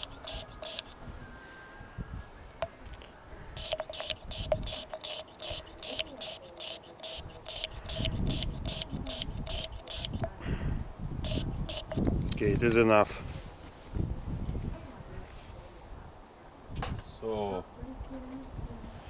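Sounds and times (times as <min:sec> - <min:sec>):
aerosol can spraying: 0:00.0 - 0:00.9, 0:03.6 - 0:10.3, 0:11.2 - 0:12.1.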